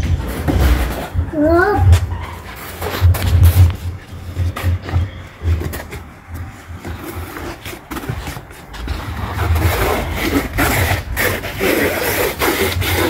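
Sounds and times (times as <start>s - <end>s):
pool float scraping on stone: 6.6s - 13.0s.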